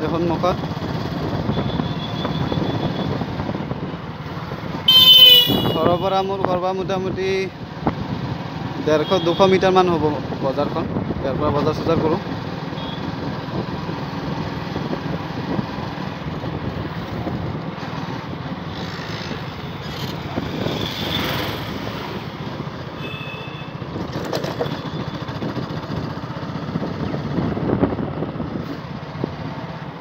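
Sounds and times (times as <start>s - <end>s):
motorcycle engine rumble: 12.2s - 30.0s.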